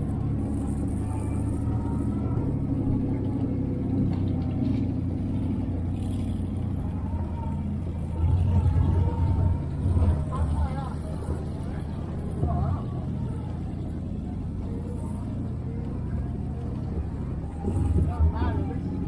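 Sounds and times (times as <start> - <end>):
utility vehicle engine running: 0.0 - 19.0.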